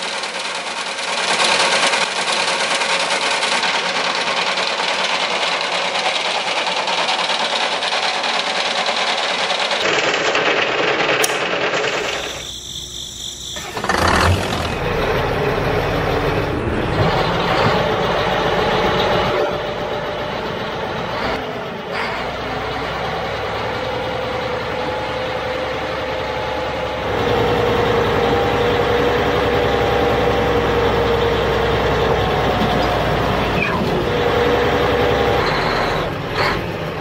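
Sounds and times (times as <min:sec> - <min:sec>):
model machinery motors running: 0:10.9 - 0:16.6.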